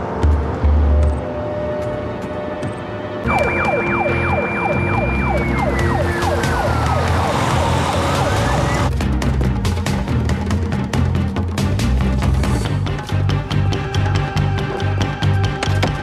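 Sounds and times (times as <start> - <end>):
dramatic background music: 0.0 - 16.0
police siren: 3.2 - 8.9.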